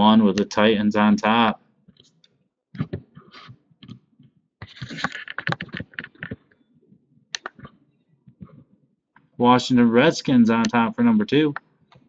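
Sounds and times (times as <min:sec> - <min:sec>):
computer mouse clicks: 0:07.3 - 0:08.6.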